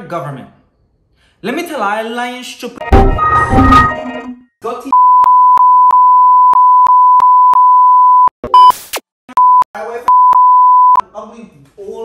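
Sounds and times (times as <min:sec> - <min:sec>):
censor bleep tone: 0:05.0 - 0:08.7, 0:09.4 - 0:11.0.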